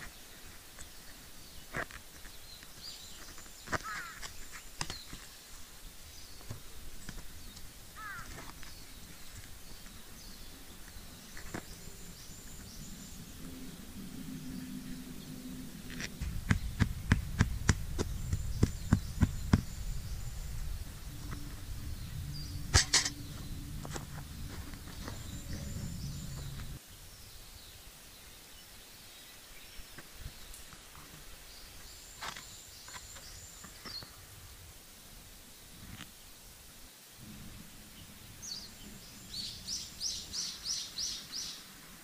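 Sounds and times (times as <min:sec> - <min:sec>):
birds chirping: 0:00.0 - 0:34.4, 0:37.2 - 0:42.0
low background rumble: 0:10.0 - 0:26.8
loud strike: 0:22.4 - 0:23.5.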